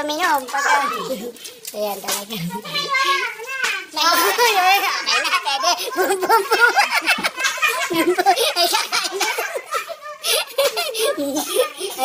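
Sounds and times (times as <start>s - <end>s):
women and girls laughing: 4.2s - 12.0s.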